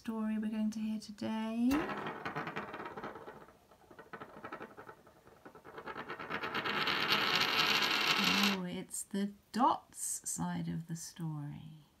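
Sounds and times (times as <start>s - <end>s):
coin spinning on wooden table: 1.7s - 8.6s.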